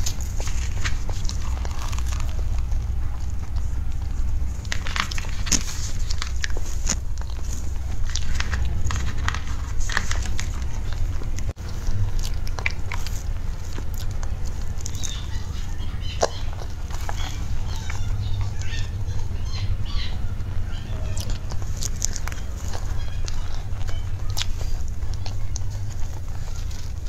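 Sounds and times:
chewing with mouth clicks: 0.0s - 27.0s
steady low hum: 0.0s - 27.0s.

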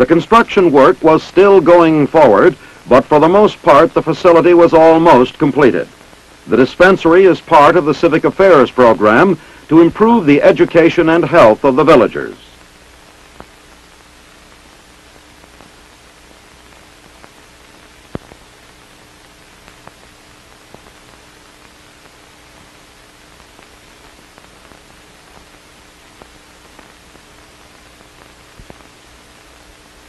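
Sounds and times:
faint steady hum: 0.0s - 30.0s
film soundtrack hiss: 0.0s - 30.0s
clicks and pops: 18.1s - 18.4s, 28.2s - 28.9s.

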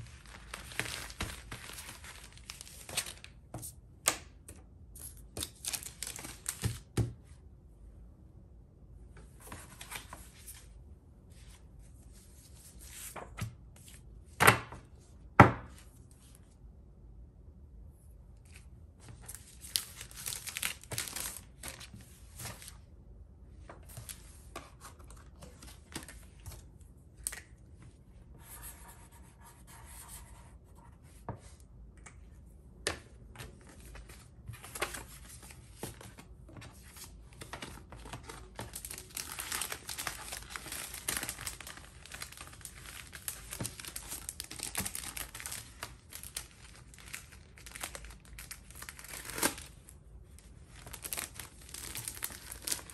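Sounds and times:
plastic sleeves crinkling: 0.0s - 3.4s, 5.4s - 6.8s, 18.5s - 22.8s, 33.5s - 52.9s.

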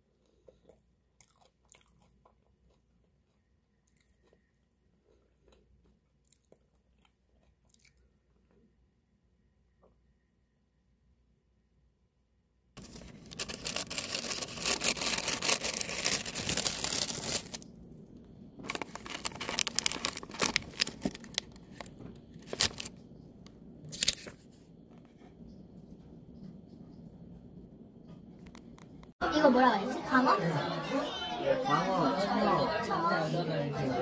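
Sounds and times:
plastic pouch crinkling: 12.8s - 17.6s, 18.6s - 23.0s, 23.9s - 24.3s.

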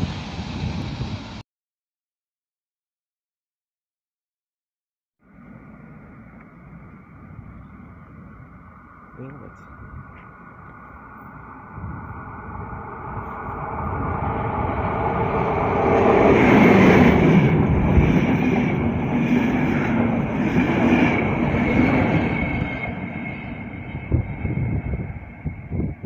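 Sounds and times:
passenger train passing: 0.0s - 1.4s, 5.2s - 26.0s.

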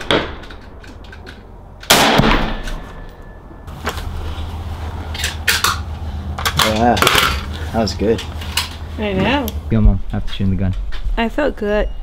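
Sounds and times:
rifle shot with echo: 1.9s - 2.9s.

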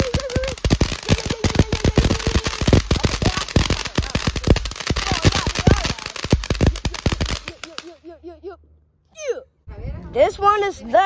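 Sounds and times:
firework crackling pops and bangs: 0.0s - 8.0s.

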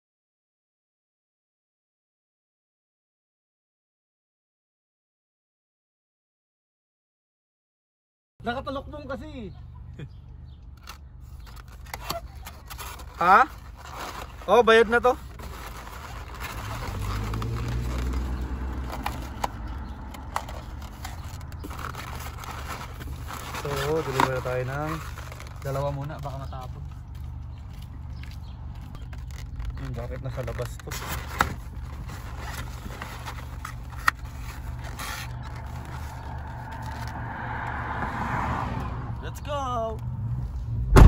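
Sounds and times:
foam containers knocking and rustling: 11.6s - 26.7s.

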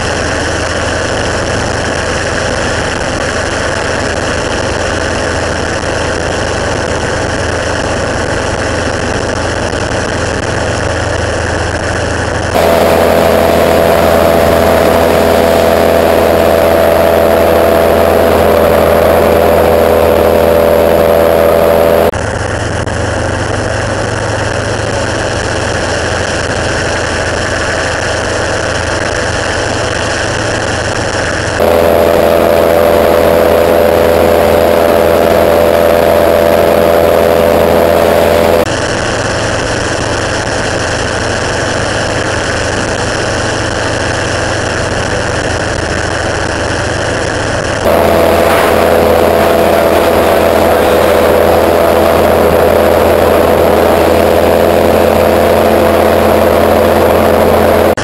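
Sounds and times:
gyroplane engine and propeller: 0.0s - 58.0s.

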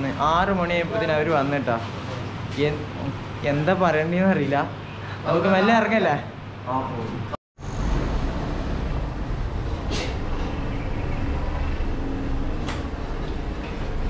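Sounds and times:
rumbling road and vehicle noise: 7.6s - 14.0s
brief hisses: 9.9s - 10.3s.

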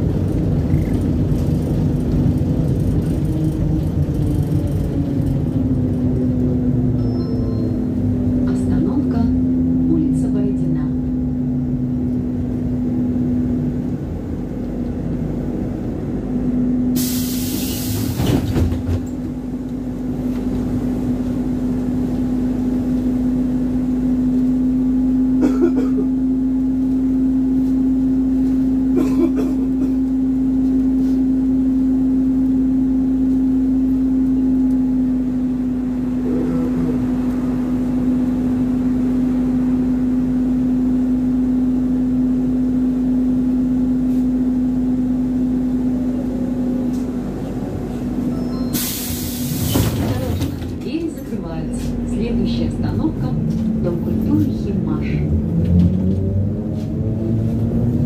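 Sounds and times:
electrical hum of trolleybus: 0.0s - 58.0s
pneumatic air hiss: 17.0s - 18.2s, 48.7s - 49.9s.

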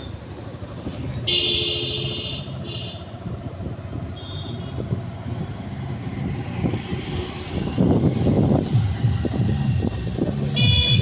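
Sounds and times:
engine and road noise: 0.0s - 11.0s
vehicle horn: 1.3s - 3.1s, 4.2s - 4.8s, 10.6s - 11.0s.

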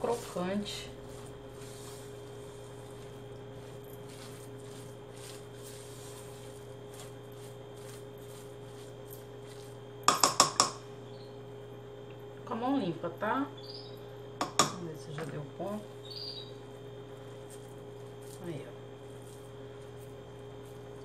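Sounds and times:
hands kneading food in bowl: 0.0s - 10.6s, 16.6s - 21.0s
low steady hum: 0.0s - 21.0s.

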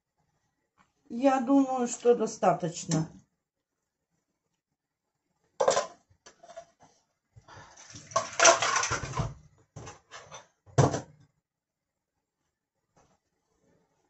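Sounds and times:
dishes clattering: 5.6s - 6.8s, 8.0s - 11.1s.

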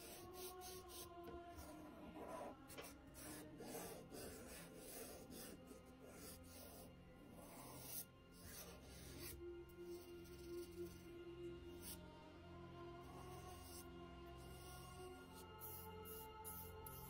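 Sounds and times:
fingers rubbing charcoal on paper: 0.0s - 9.4s
quiet background music: 0.0s - 17.0s.

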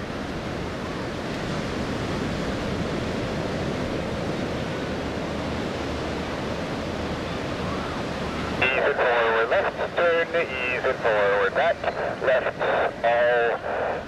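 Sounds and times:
distant fighter jet roar: 7.6s - 14.0s.

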